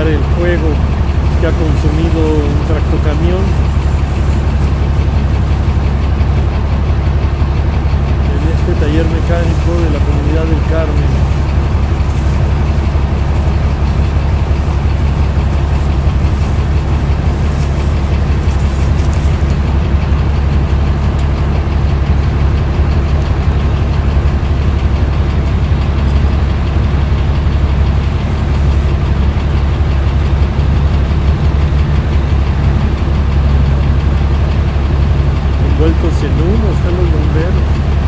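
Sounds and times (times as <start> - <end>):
large engine idling: 0.0 - 38.0.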